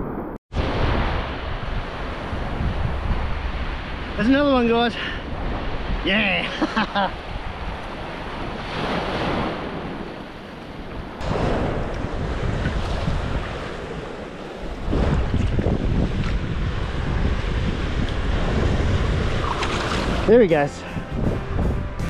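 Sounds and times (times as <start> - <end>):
wind buffeting microphone: 0.6 - 6.1, 6.8 - 22.0
surf washing on sand: 0.6 - 20.8.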